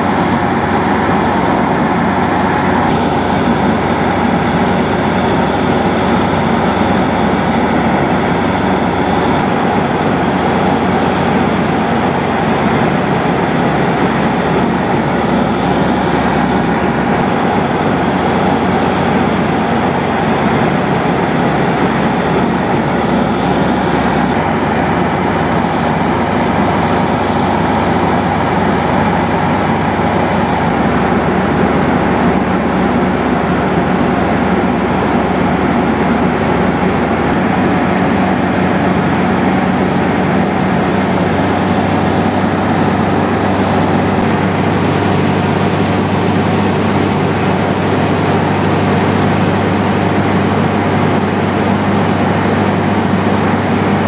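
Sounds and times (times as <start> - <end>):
airflow noise: 0.0 - 54.0
light aircraft engine drone: 0.0 - 54.0.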